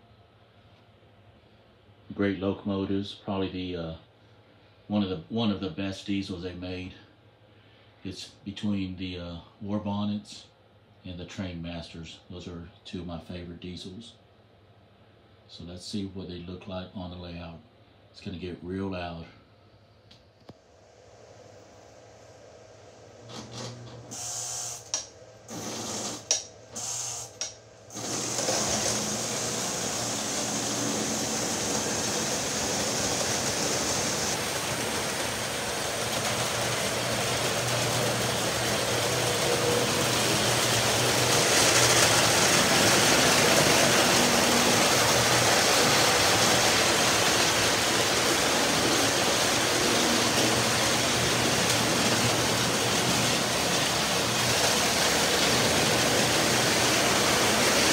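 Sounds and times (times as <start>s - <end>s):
model train motors whirring and rattling: 23.3s - 57.9s.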